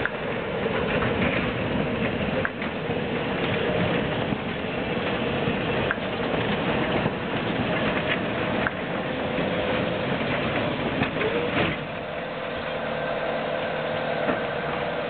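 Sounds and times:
tram wheels running on rails: 0.0 - 15.0
wheel squeal: 9.1 - 15.0.

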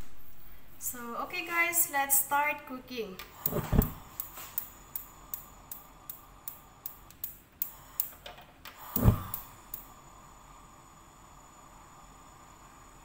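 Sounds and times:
gas stove igniter clicking: 3.2 - 9.9
dull thump: 3.5 - 4.0, 9.0 - 9.4.

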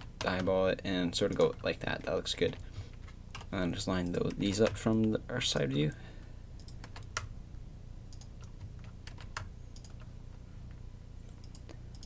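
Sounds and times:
faint low hum: 0.0 - 12.0
keyboard and mouse clicking: 1.2 - 5.9, 6.6 - 7.3, 8.1 - 10.1, 11.4 - 12.0.

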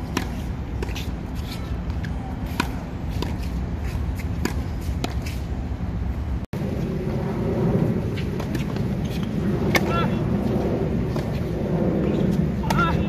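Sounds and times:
racquets striking tennis ball: 0.0 - 5.5, 8.1 - 10.2, 11.1 - 13.0.

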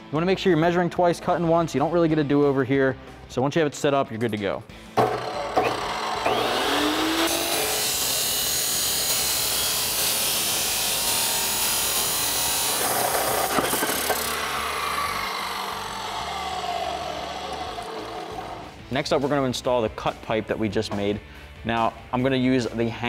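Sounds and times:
cut-off wheel grinding metal pipe: 5.0 - 18.8
saw motor whining: 5.0 - 18.8.

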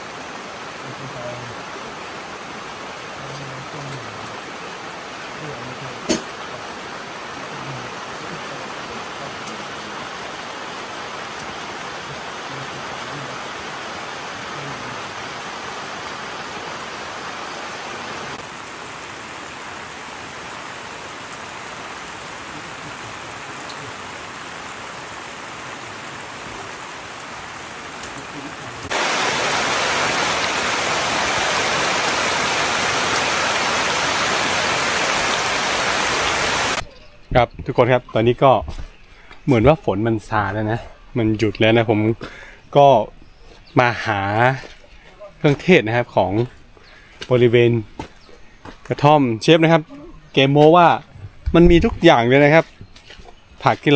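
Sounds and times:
steady rain falling: 0.0 - 53.9.

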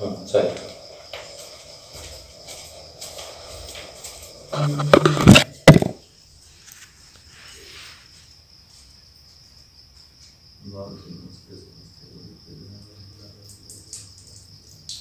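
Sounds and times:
crickets chirring: 0.0 - 15.0
knocks and rustling: 0.4 - 6.0.

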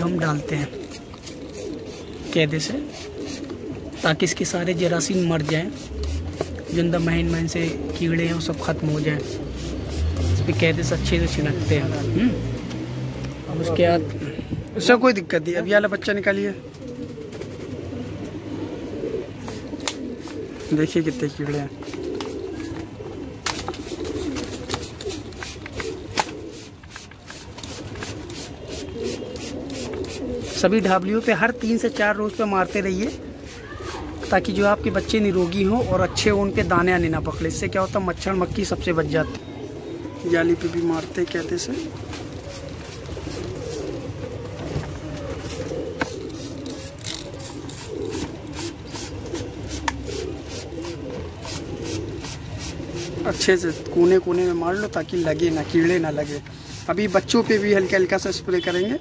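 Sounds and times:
pigeons cooing: 0.0 - 59.0
spray bottle spritzes: 45.4 - 47.9.

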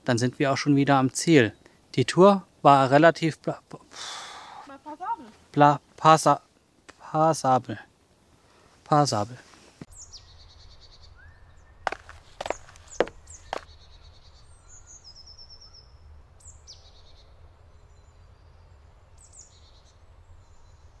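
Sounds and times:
songbirds singing: 9.9 - 21.0.

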